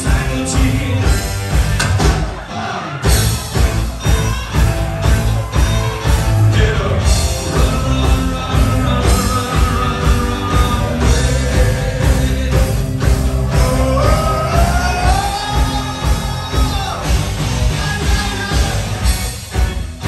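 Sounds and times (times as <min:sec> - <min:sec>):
live rock band playing: 0:00.0 - 0:20.0
person singing: 0:06.4 - 0:18.9.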